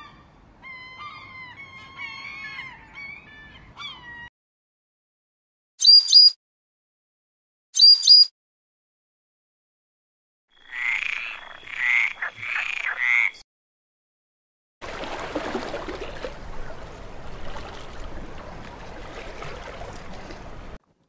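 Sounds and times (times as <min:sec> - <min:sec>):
frog croaking: 0:10.5 - 0:13.4
water sloshing and splashing: 0:14.8 - 0:21.0.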